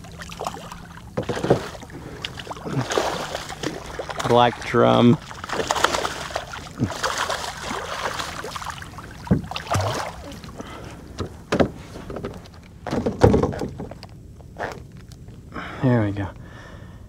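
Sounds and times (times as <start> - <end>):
fish thrashing and splashing: 0.0 - 11.5
sharp knocks on a kayak: 9.2 - 10.0, 11.2 - 14.0.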